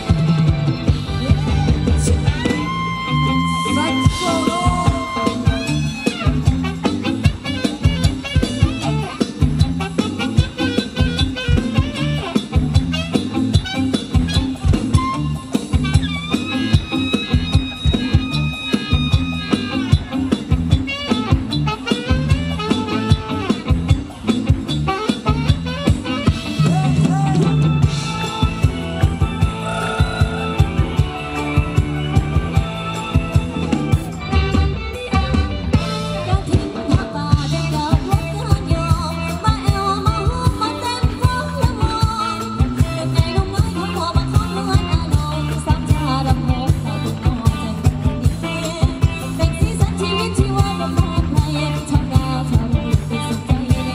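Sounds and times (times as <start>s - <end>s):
bending melody line: 0.0s - 20.3s
bass: 0.0s - 53.9s
steady drum beat: 0.0s - 53.9s.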